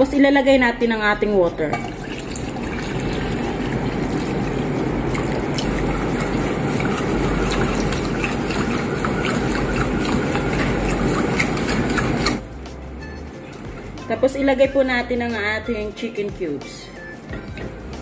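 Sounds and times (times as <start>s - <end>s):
water pouring into a saucepan: 1.8s - 12.4s
whisk ticking against a pan: 5.0s - 12.4s.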